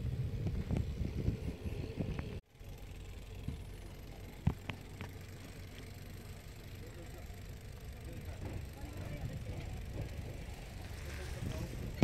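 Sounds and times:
wind buffeting microphone: 0.0 - 2.4, 9.1 - 12.0
bicycle road rumble: 0.0 - 12.0
sharp clicks and rattles: 2.1 - 12.0.

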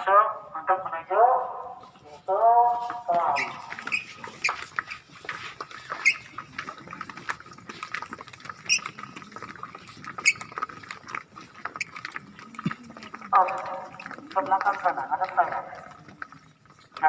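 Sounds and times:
children's footsteps on paved floor: 0.0 - 17.0.

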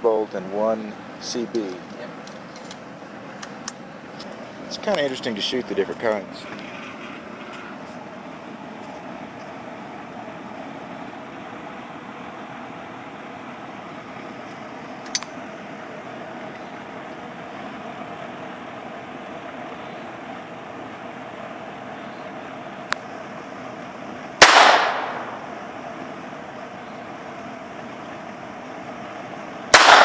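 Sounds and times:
steady background hum: 0.0 - 30.0
pistol shot crack: 24.4 - 25.5, 29.7 - 30.0.

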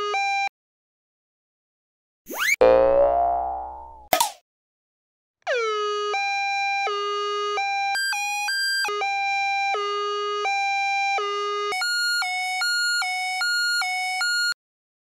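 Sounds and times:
cartoon two-tone siren: 5.5 - 14.6.

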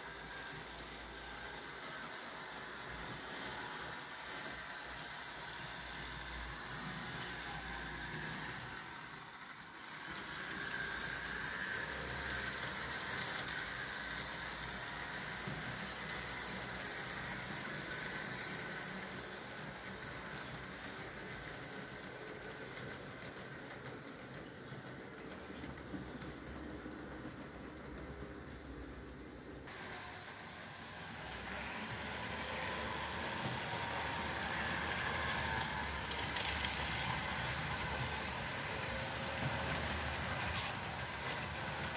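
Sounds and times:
model train motor whirring: 0.0 - 28.6, 29.6 - 41.9
small wheels rolling on track: 0.0 - 41.9.

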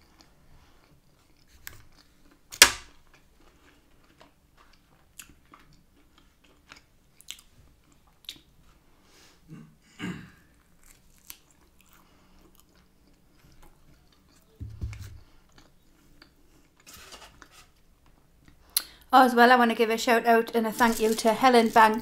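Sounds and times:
person chewing food: 0.0 - 8.6, 10.5 - 16.9.

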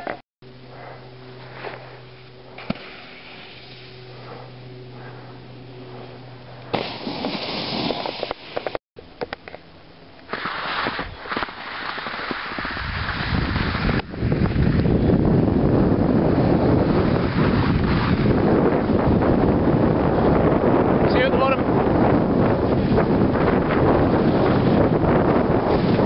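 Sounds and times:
skis scraping over hard snow: 6.7 - 8.8, 10.3 - 14.9, 16.5 - 18.7
wind buffeting microphone: 12.0 - 26.0.

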